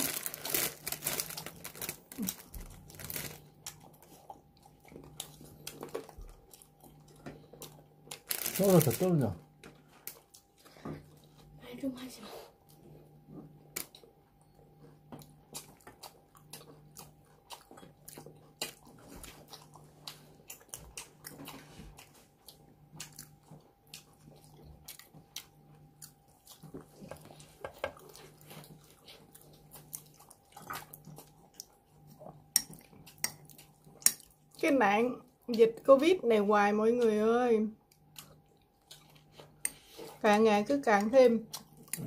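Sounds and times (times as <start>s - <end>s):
crunchy chewing: 0.0s - 11.6s, 12.6s - 34.6s, 37.8s - 40.2s, 41.4s - 42.0s.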